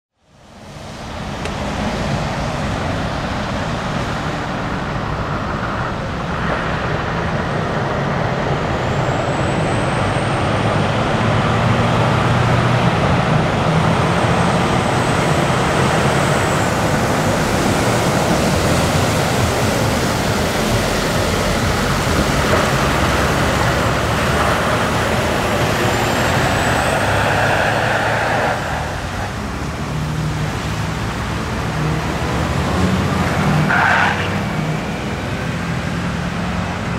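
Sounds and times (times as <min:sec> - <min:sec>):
other traffic: 0:00.1 - 0:36.9
truck diesel engine: 0:00.5 - 0:36.9
tyres hissing on wet asphalt: 0:15.0 - 0:36.9.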